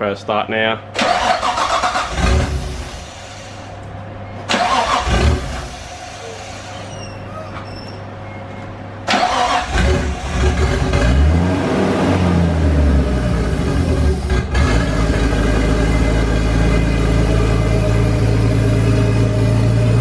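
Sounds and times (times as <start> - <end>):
car engine starting and revving: 1.0 - 3.6, 4.5 - 6.2, 9.0 - 20.0.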